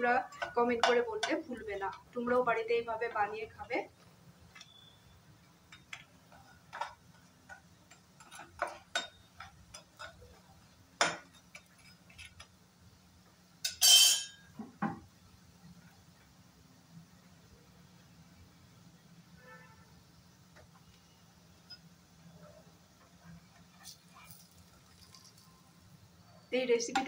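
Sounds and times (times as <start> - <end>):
metal turner tapping on pan: 0.3 - 1.5.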